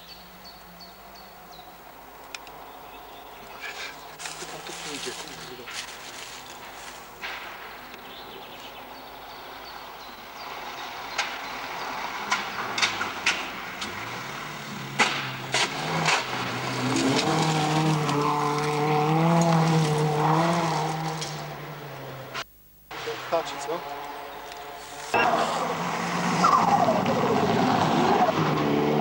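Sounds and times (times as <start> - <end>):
rally car engine passing: 6.6 - 29.0.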